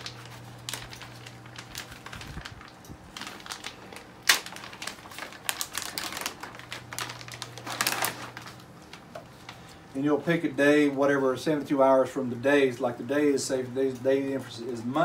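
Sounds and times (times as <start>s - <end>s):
plastic package crinkling: 0.0s - 9.9s.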